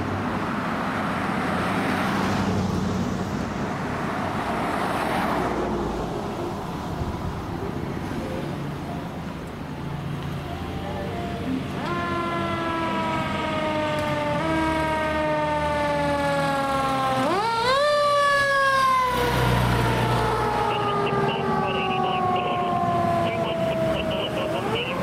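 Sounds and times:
fire engine siren wailing: 10.4 - 25.0.

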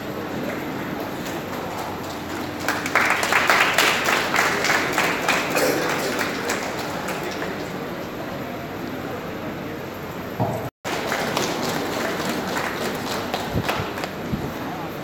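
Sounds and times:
audience clapping: 0.3 - 8.2, 10.8 - 14.4.

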